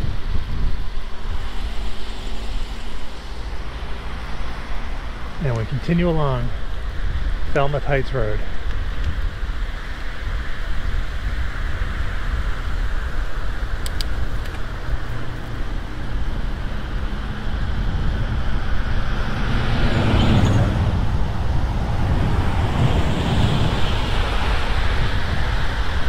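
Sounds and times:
road traffic: 0:00.0 - 0:26.0
wind on microphone: 0:00.0 - 0:26.0
vehicle passing: 0:14.6 - 0:26.0.

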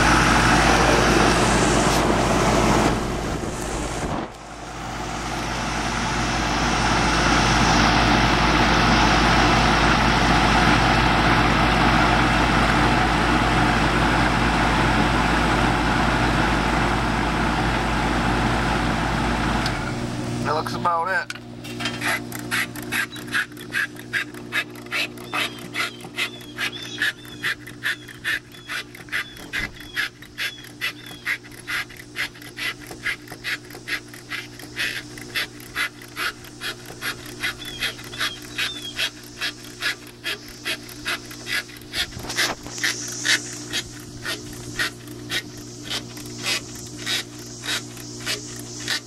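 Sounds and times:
air conditioner unit humming: 0:00.0 - 0:49.0
rhythmic pulsing noise: 0:22.4 - 0:49.0.

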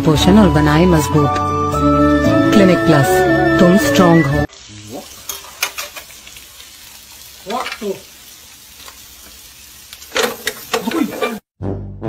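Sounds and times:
music: 0:00.0 - 0:04.5, 0:11.6 - 0:12.0
food sizzling in a pan: 0:04.0 - 0:11.5.

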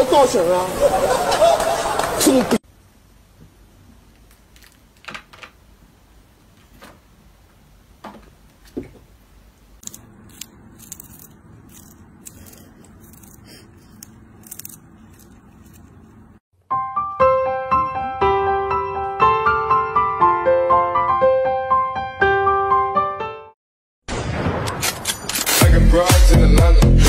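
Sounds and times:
kitten licking and chewing: 0:09.8 - 0:16.3.

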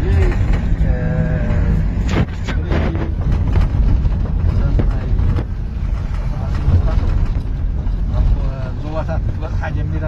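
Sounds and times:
faint passengers' voices: 0:00.0 - 0:10.0
vehicle engine and tyres rumble: 0:00.0 - 0:10.0
sharp knocks and rattles: 0:02.0 - 0:08.2.

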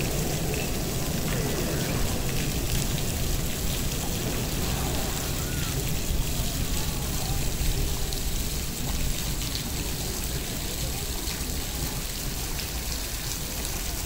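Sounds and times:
steady rushing noise: 0:00.0 - 0:09.1
faint chatter of onlookers: 0:00.0 - 0:14.0.

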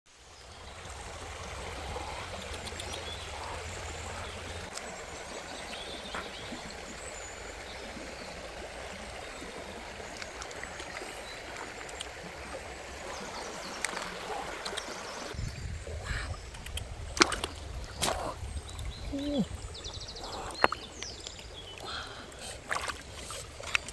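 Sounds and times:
stream trickling over rocks: 0:00.1 - 0:23.9
light splashes in water: 0:17.1 - 0:18.9, 0:22.6 - 0:23.9.

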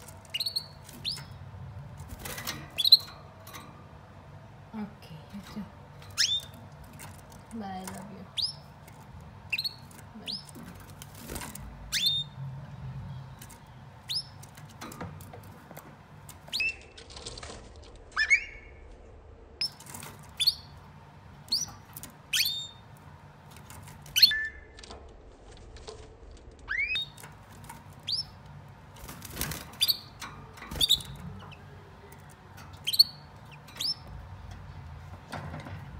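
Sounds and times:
canaries chirping: 0:00.0 - 0:04.1, 0:04.8 - 0:17.3, 0:18.1 - 0:18.9, 0:19.6 - 0:24.8, 0:26.6 - 0:35.9
wings fluttering: 0:28.9 - 0:30.0.

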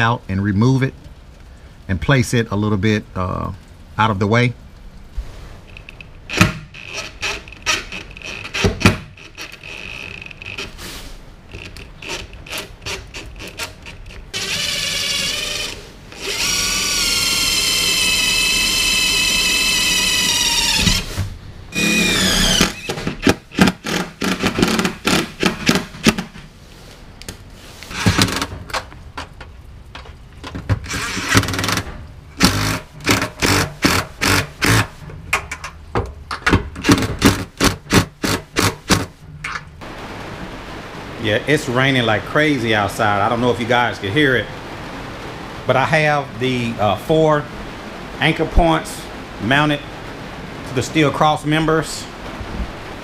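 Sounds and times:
drill clicks and knocks: 0:06.3 - 0:10.7, 0:11.6 - 0:21.0, 0:21.8 - 0:26.4, 0:27.9 - 0:39.6
cordless drill whining: 0:14.4 - 0:21.1, 0:21.8 - 0:25.2, 0:30.9 - 0:31.8.

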